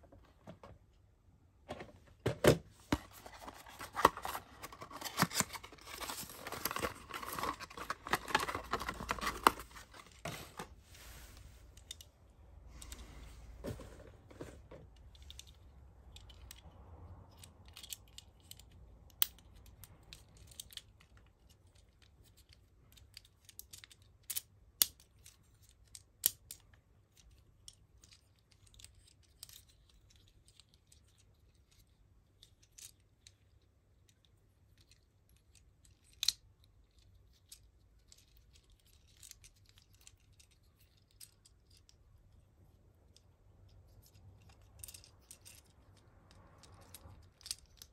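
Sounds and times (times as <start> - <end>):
packaging rustling and crackling: 2.8 - 10.9.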